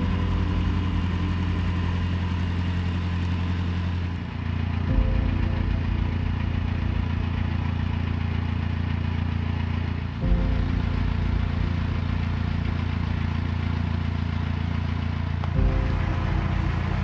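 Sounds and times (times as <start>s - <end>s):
boat engine humming: 0.0s - 17.0s.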